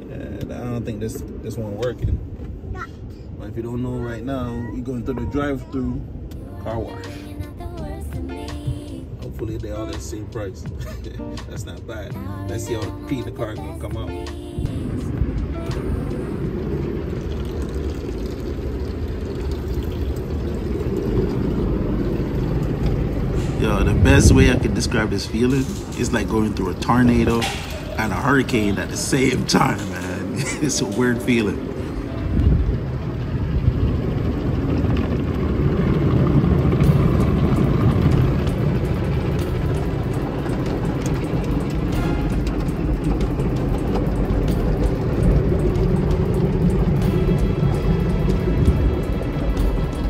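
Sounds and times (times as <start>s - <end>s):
muffled water rushing on car: 13.0s - 50.0s.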